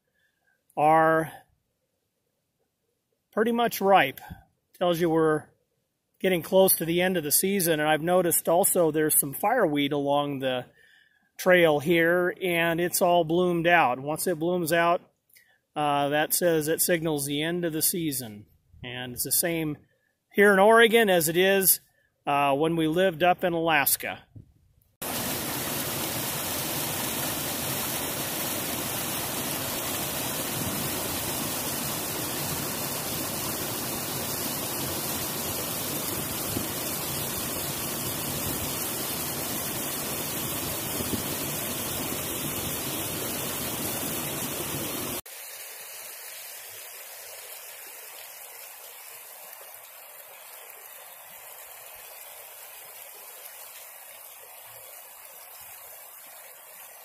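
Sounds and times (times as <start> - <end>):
water rushing over rocks: 25.0 - 57.0.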